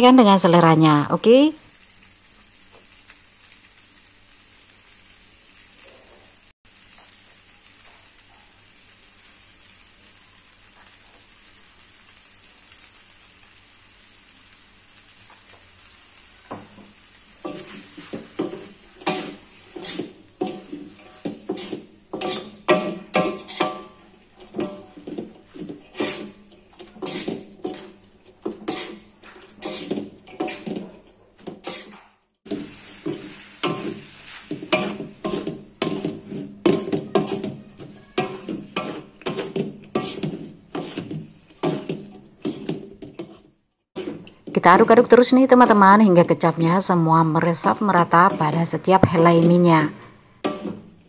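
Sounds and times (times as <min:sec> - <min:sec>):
noodles sizzling in a wok: 0:00.0 - 0:51.0
spatula scraping a wok: 0:16.4 - 0:51.0.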